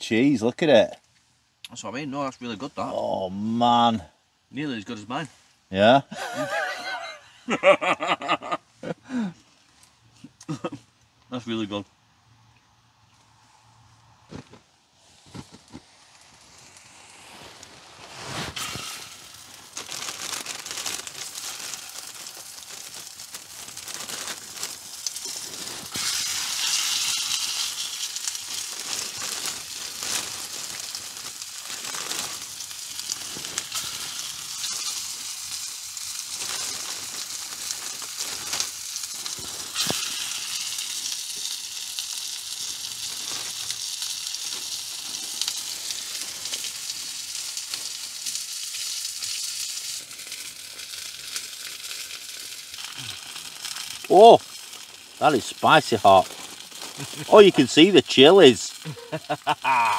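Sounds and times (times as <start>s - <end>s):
sharp pops: 14.2s - 29.1s, 36.2s - 41.6s
sausages sizzling in a pan: 15.8s - 59.9s.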